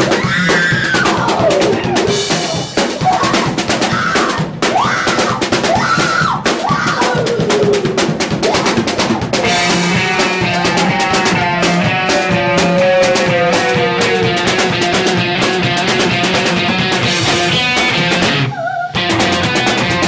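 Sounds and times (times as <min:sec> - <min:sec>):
wailing notes: 0:00.0 - 0:05.2, 0:06.7 - 0:19.7
pounding drum kit: 0:00.0 - 0:20.0
punk rock band playing: 0:00.0 - 0:20.0
sustained sliding notes: 0:09.4 - 0:17.8.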